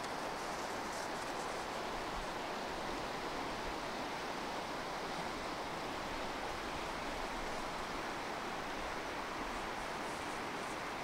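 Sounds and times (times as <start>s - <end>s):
stream rushing: 0.0s - 11.0s.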